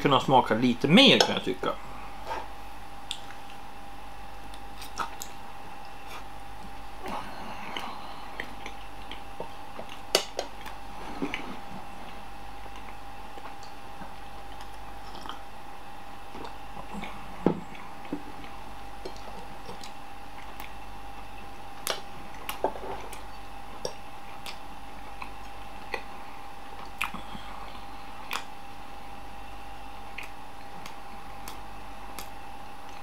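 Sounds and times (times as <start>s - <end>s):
faint background hum: 0.0s - 33.0s
person chewing food: 4.4s - 15.6s, 16.3s - 28.6s, 30.0s - 33.0s
wet mouth clicks and smacks: 23.8s - 24.6s, 26.8s - 27.2s, 28.3s - 28.5s, 30.1s - 31.6s.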